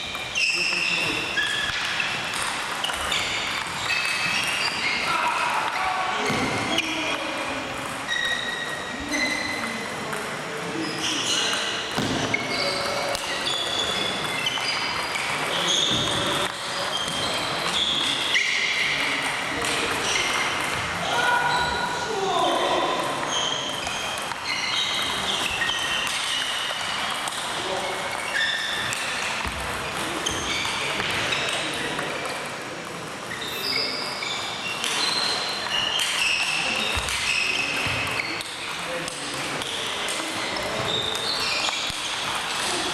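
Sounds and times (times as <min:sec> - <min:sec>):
table tennis balls clicking: 0:35.6 - 0:42.9.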